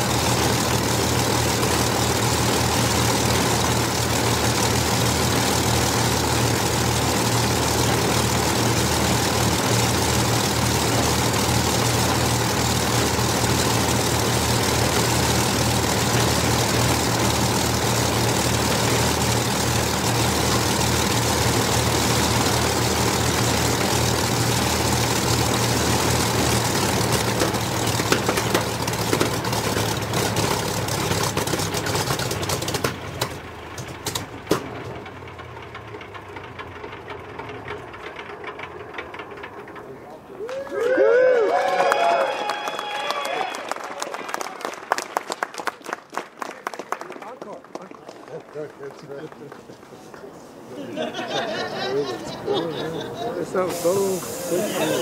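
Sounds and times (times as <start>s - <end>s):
engine popping: 0.0s - 40.4s
aircraft engines idling: 0.0s - 40.8s, 47.2s - 55.0s.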